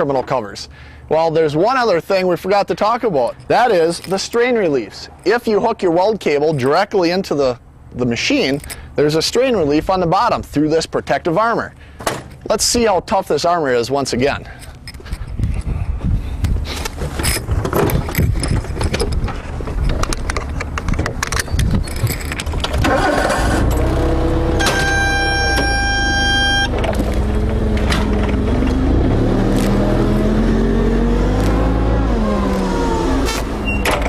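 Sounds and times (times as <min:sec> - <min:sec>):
rattling and knocking: 0:17.0 - 0:22.9
forklift engine revving: 0:22.8 - 0:34.0
steady high tone: 0:24.5 - 0:26.9.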